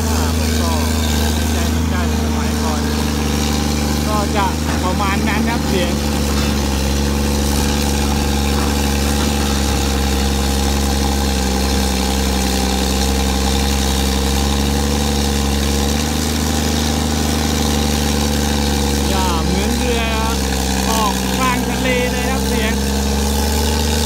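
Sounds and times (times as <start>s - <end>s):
excavator diesel engine running: 0.0s - 24.0s.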